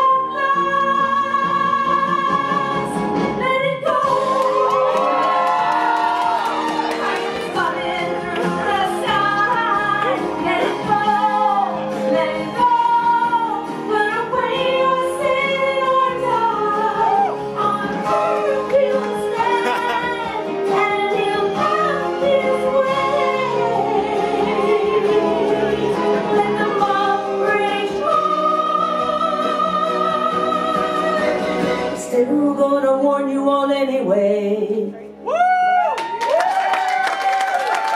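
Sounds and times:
person singing over instrumental: 0.0s - 33.4s.

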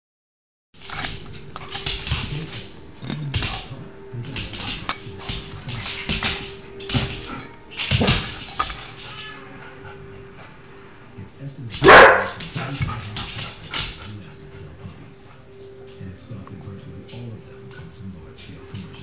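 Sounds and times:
claws clicking on floor: 0.8s - 9.2s, 11.8s - 14.2s
dog and cat scuffling: 11.8s - 19.0s.

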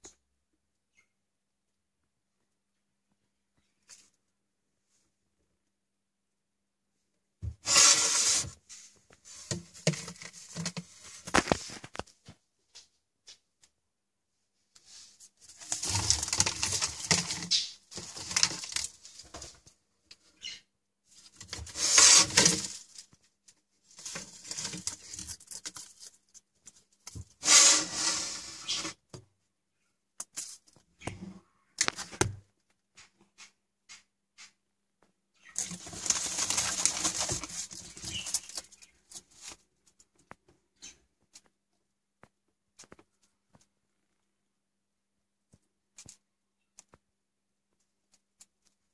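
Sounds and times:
rustling and scratching on newspaper: 7.6s - 12.0s, 14.9s - 19.6s, 21.2s - 23.2s, 23.8s - 26.4s, 35.6s - 39.7s.

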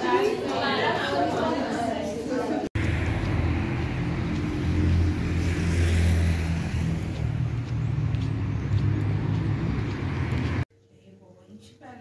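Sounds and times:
traffic rumble: 2.8s - 10.7s.

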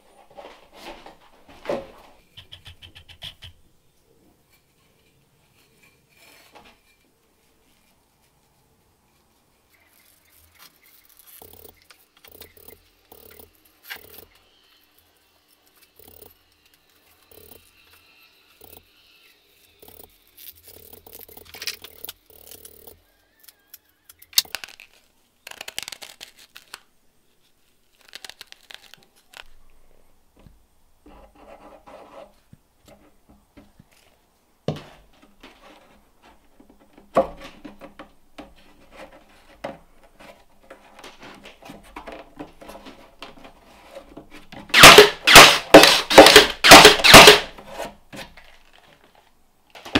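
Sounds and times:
sharp wooden knocks: 2.2s - 3.6s, 44.6s - 47.6s
rope rubbing through wooden block: 4.4s - 22.9s.

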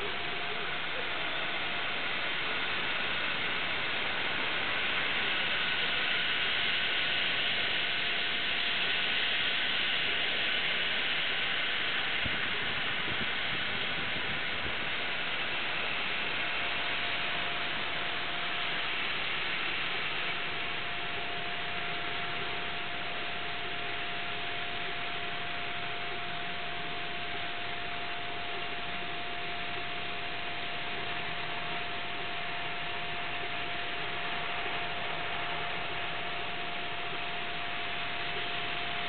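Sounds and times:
faint steady tone: 0.0s - 39.0s
laser cutter hissing: 0.0s - 39.0s.

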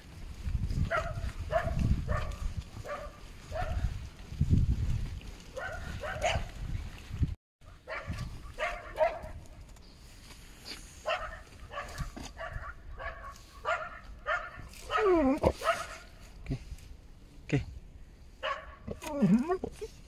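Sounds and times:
dog barking: 0.9s - 3.9s, 5.6s - 6.6s, 7.7s - 9.4s, 11.0s - 16.2s, 18.4s - 19.0s.

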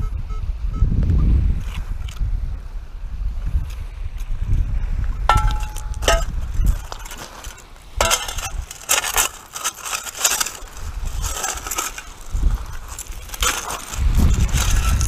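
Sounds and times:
metal scoop crunching gravel: 5.3s - 15.0s
stones clinking on metal: 5.3s - 15.0s.

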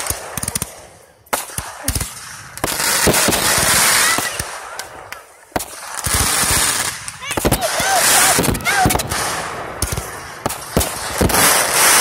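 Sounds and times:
firework bangs: 0.0s - 12.0s
hissing crackle of sparks: 0.0s - 12.0s.

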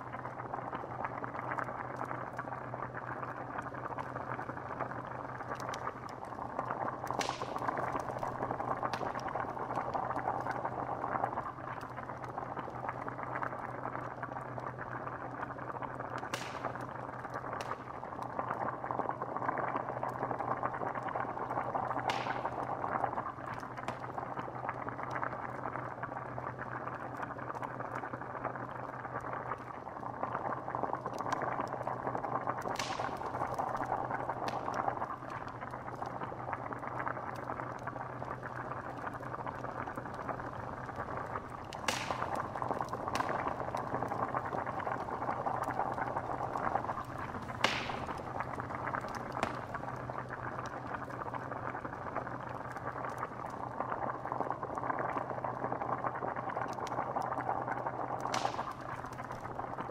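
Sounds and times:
liquid bubbling: 0.0s - 59.9s
sharp pops: 5.4s - 10.5s, 16.2s - 16.9s, 21.9s - 22.8s, 32.6s - 36.1s, 38.8s - 51.0s, 58.2s - 59.5s.

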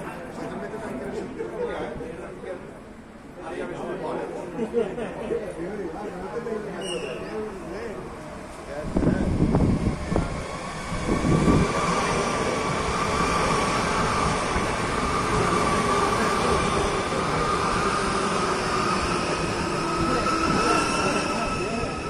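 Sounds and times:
electric train passing slowly: 7.4s - 22.0s
train wheels rumbling: 8.0s - 22.0s.

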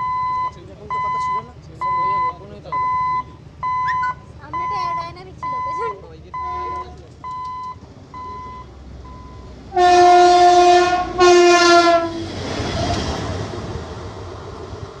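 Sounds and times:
rail car rumbling past: 0.0s - 7.1s, 7.7s - 15.0s
short electronic beeps: 0.0s - 9.5s
railway car horn blasts: 6.4s - 7.0s, 9.7s - 12.4s.

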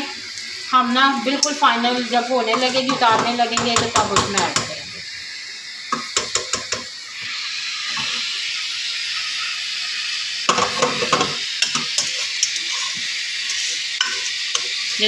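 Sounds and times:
sugar sizzling in a saucepan: 0.0s - 15.0s
spatula scraping a pan: 7.9s - 8.3s, 10.5s - 15.0s.

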